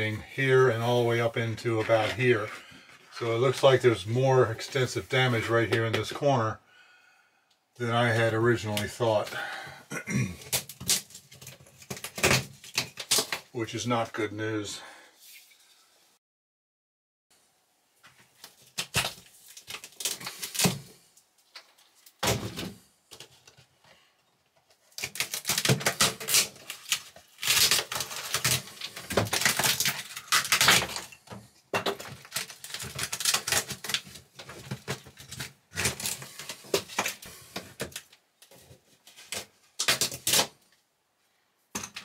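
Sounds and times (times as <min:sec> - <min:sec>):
plywood cracking and snapping: 0:10.4 - 0:13.5, 0:18.7 - 0:20.8, 0:24.9 - 0:31.1, 0:31.9 - 0:37.2, 0:39.3 - 0:40.6.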